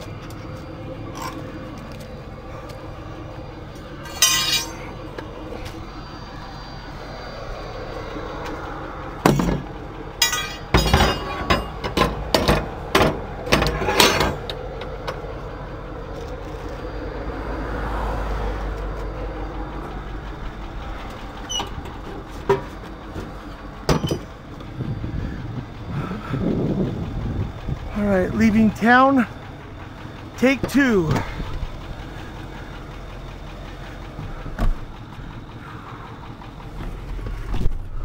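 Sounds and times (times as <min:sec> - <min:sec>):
metal clanks and knocks: 0:00.0 - 0:05.8, 0:08.4 - 0:15.3, 0:19.8 - 0:25.8
low vehicle rumble: 0:00.0 - 0:38.0.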